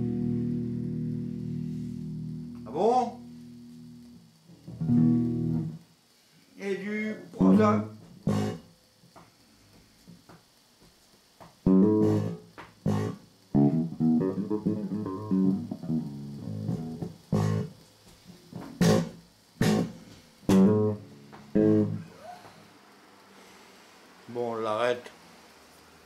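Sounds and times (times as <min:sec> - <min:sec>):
guitar notes and chords: 0:00.0 - 0:05.8, 0:07.3 - 0:08.7, 0:11.6 - 0:17.8, 0:18.4 - 0:22.4.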